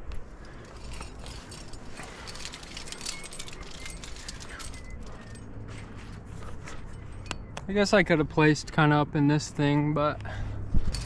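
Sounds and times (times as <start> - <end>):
climbing gear clinking: 0.0 - 8.0, 10.2 - 11.0.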